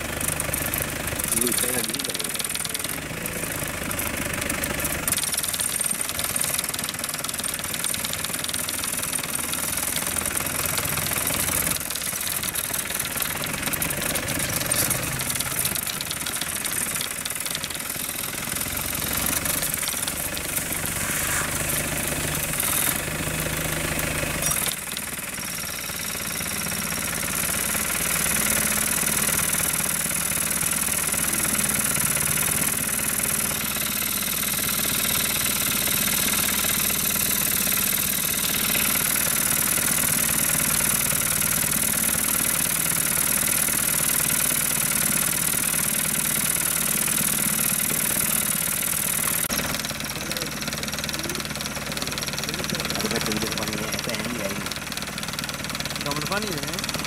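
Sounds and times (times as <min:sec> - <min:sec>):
vehicle engine idling: 0:00.0 - 0:57.0
hiss: 0:20.7 - 0:22.0.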